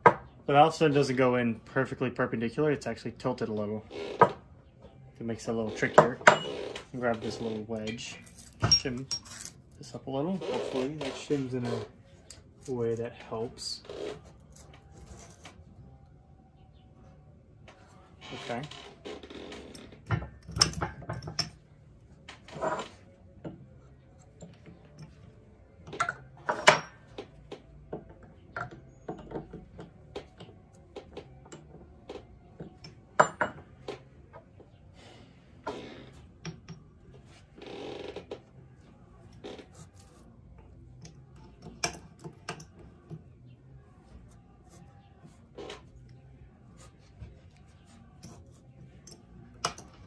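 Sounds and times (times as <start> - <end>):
metal tools clinking on workbench: 5.9 - 6.7, 7.8 - 9.6, 26.0 - 27.1.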